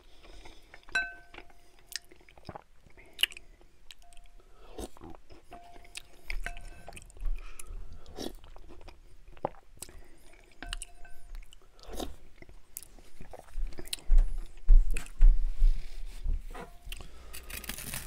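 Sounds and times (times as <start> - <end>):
soft chewing: 0.0 - 18.0
spoon clinking on glass: 0.9 - 1.6, 5.6 - 7.0, 10.6 - 11.4
spoon stirring soup in glass bowl: 0.9 - 1.7, 5.3 - 7.2, 10.6 - 11.5.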